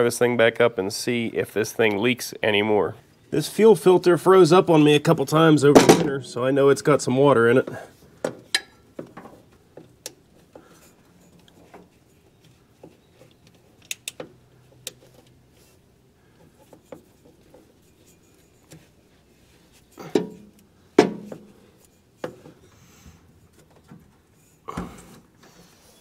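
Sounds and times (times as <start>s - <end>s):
strap wrench clicking and rubbing: 10.0s - 15.8s.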